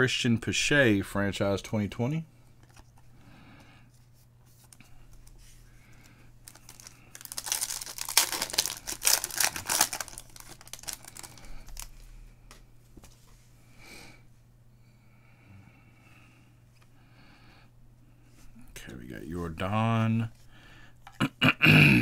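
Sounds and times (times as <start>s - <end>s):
cards and wrapper rustling: 6.0s - 12.1s
foil wrapper tearing and crinkling: 6.4s - 12.0s.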